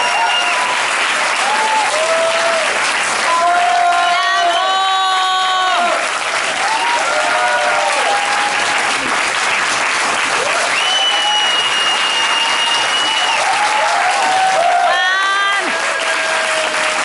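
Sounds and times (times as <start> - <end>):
audience applauding: 0.0 - 17.0
steady high whistle tone: 10.8 - 13.4.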